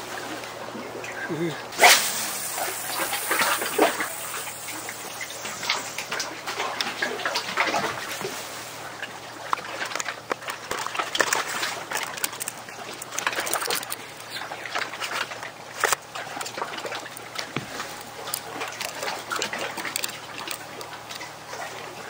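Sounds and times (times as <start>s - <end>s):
fish flapping on wet boards: 5.5s - 21.9s.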